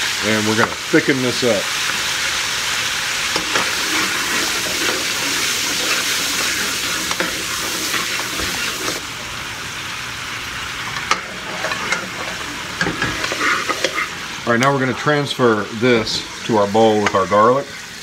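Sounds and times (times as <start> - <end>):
sauce sizzling in a wok: 0.0 - 18.0
spoon scraping a pan: 3.3 - 9.0, 11.0 - 14.2.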